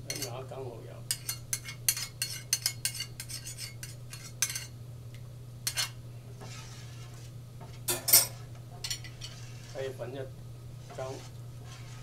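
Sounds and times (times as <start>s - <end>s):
steady low hum: 0.0s - 12.0s
spoons clinking against metal bowl: 0.1s - 0.4s, 1.1s - 4.7s.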